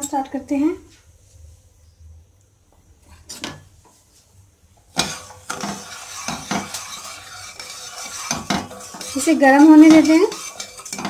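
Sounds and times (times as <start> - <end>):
metal spoon scraping a pot: 5.0 - 11.0.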